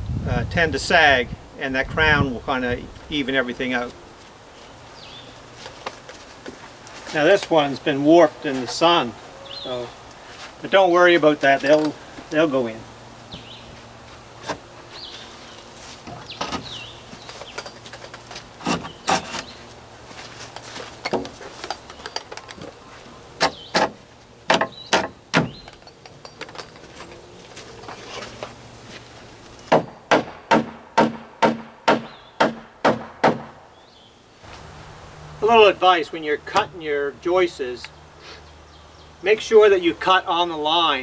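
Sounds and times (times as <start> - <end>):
hammer driving nails: 23.4 - 25.6, 29.7 - 33.5
wooden joists knocking: 23.4 - 26.8.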